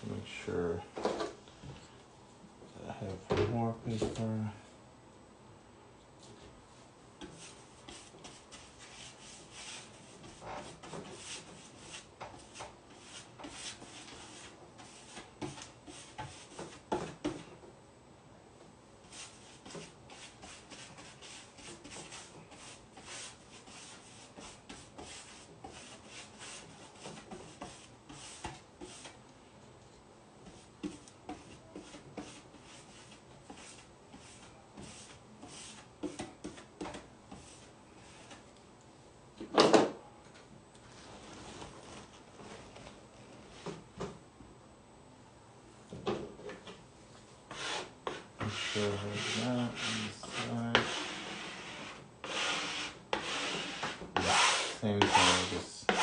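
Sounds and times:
brush rubbing on wood: 0:07.4 - 0:16.8, 0:19.1 - 0:29.2, 0:47.5 - 0:56.0.

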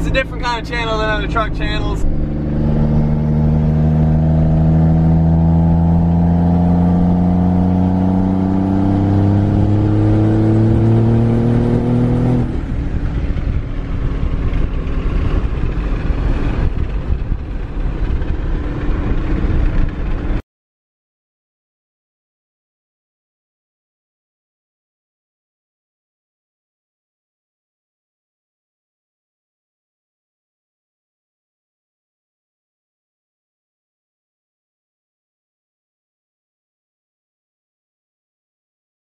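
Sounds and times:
truck engine drone: 0:00.0 - 0:20.4
wind and road noise: 0:00.0 - 0:20.4.

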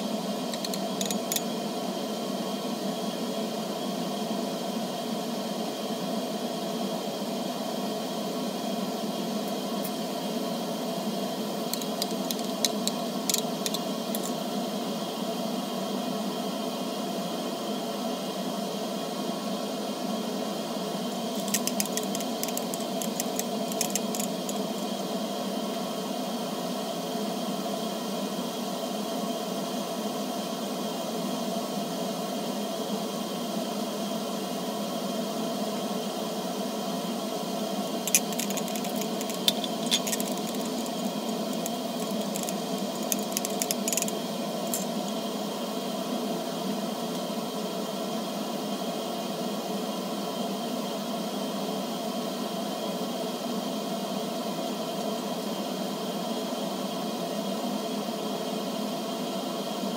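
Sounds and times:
steady background hum: 0:00.0 - 0:30.1, 0:31.6 - 0:59.9
glass rod clinking in beaker: 0:00.6 - 0:01.4.

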